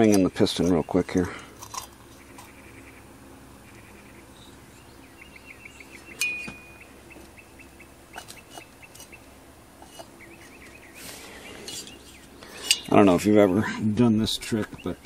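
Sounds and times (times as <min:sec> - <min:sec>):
small bird chirping: 0:01.9 - 0:13.6
metal clinks: 0:06.2 - 0:06.8.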